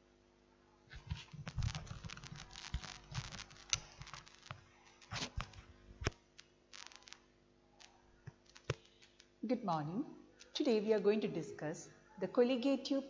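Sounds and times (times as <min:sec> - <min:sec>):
faint steady hum: 0:00.0 - 0:13.0.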